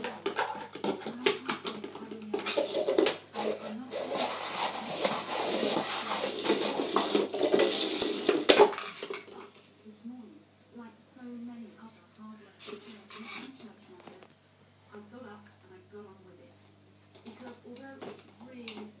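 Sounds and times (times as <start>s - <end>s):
tub scraping and rattling: 0.0s - 9.5s
tub clattering on tile floor: 0.0s - 9.6s.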